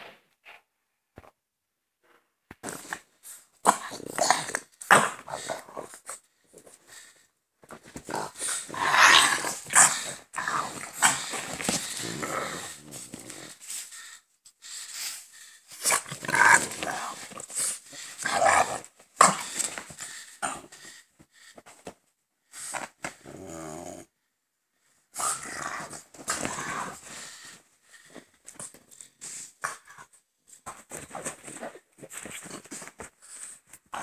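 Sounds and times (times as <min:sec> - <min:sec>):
dogs growling: 0:08.0 - 0:13.7, 0:15.8 - 0:20.8.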